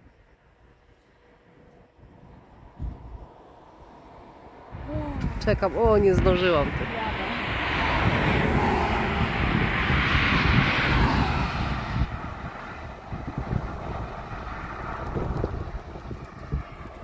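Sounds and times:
thunder rumbling: 2.1 - 17.0.

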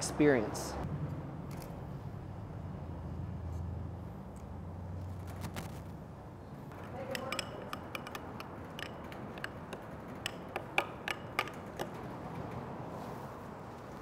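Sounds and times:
spoon scraping glass bowl: 7.0 - 9.6.

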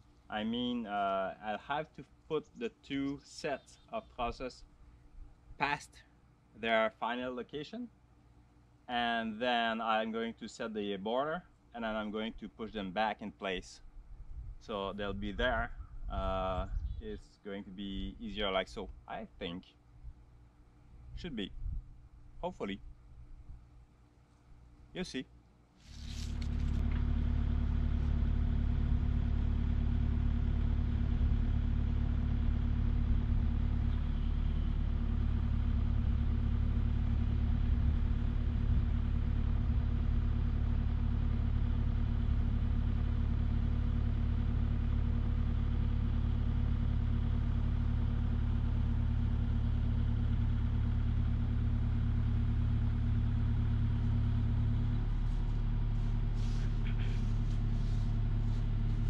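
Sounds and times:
excavator diesel engine running: 26.4 - 59.0.

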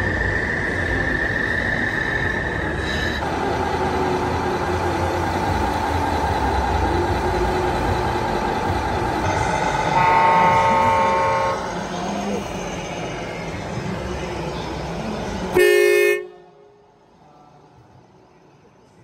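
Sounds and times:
model trucks whining: 0.0 - 16.4
air horn blast: 9.8 - 11.7, 15.6 - 16.6.

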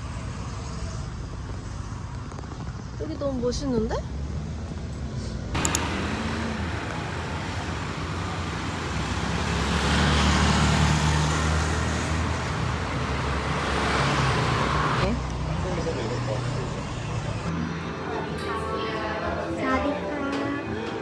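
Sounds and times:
city road traffic: 0.0 - 21.0
car passing by: 4.1 - 19.8
motor scooter passing: 5.6 - 18.3.

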